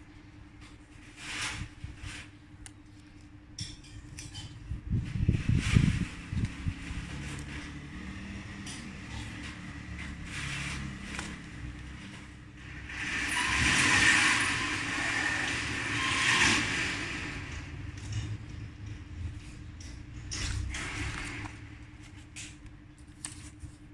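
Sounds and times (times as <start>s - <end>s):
paper rustling and crinkling: 5.2s - 12.9s, 20.3s - 23.9s.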